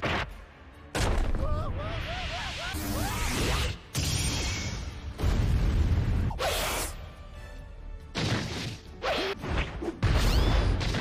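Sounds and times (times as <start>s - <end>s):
dramatic background music: 0.0s - 11.0s.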